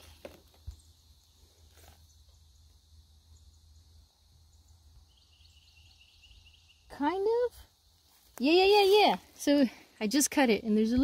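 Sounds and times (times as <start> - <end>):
leaf litter rustling: 0.0 - 0.7, 8.1 - 9.5.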